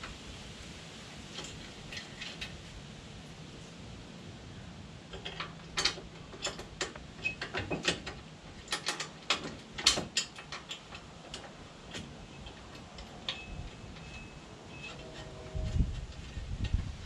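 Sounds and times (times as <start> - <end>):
metal bolts clicking and clinking: 5.1 - 15.4.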